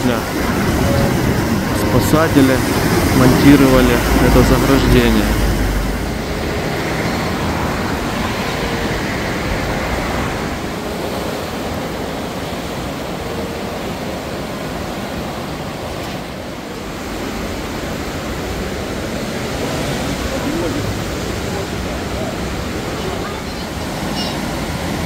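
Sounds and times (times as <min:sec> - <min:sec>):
flood river rushing: 0:00.0 - 0:25.0.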